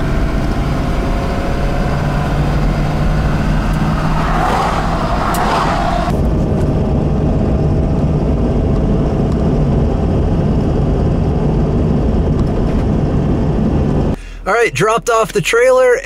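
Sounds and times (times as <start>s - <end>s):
engine and road rumble: 0.0s - 16.0s.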